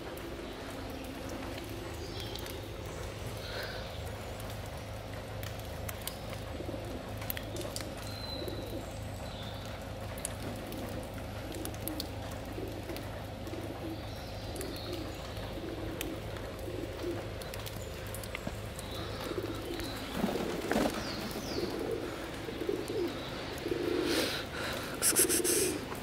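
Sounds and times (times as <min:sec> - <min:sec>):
pigeons cooing: 0:06.2 - 0:09.1, 0:09.7 - 0:26.0.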